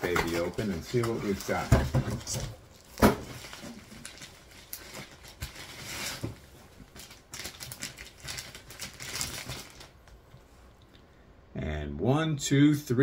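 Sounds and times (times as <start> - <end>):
packaging rustling and scraping: 0.0 - 10.0.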